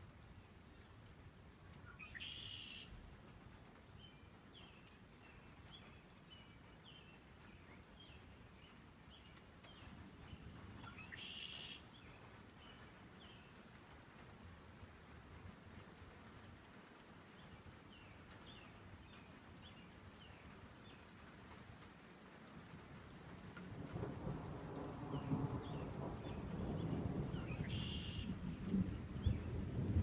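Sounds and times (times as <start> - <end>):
songbirds buzzy trills: 4.0 - 13.5, 25.2 - 28.4
songbirds down-slurred chirps: 25.2 - 28.4.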